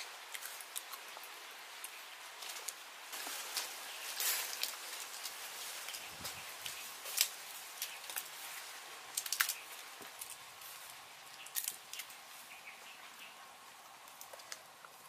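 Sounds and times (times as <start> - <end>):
crunchy chewing: 0.0 - 15.0
steady background hiss: 0.0 - 15.0
fruit rind crackling snaps: 0.2 - 2.0, 9.1 - 10.4, 11.2 - 12.2, 14.0 - 14.7.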